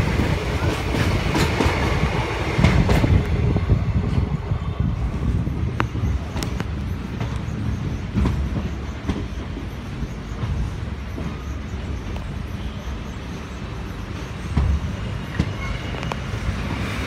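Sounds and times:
clacking over rail joints: 0.0 - 3.3
train wheels rumbling: 0.0 - 17.0.

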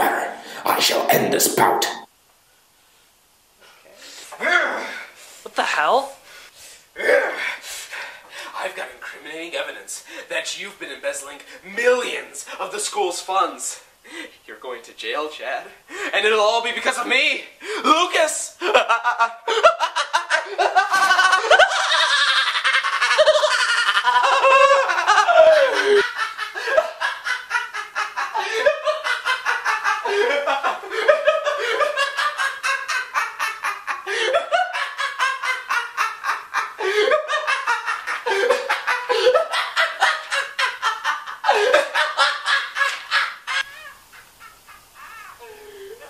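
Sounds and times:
man laughing: 18.6 - 46.0.

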